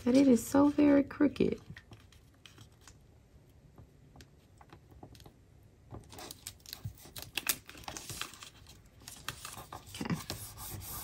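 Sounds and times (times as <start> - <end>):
paper rustling: 6.0 - 11.0.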